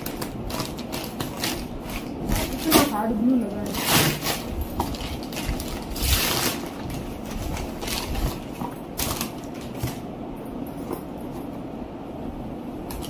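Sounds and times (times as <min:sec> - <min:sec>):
paper crinkling: 0:00.0 - 0:10.0
paper ripping: 0:03.6 - 0:09.9.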